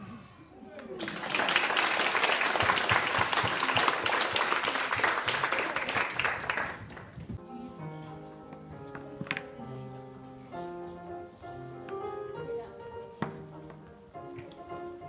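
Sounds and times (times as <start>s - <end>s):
hands clapping: 0.8s - 7.2s.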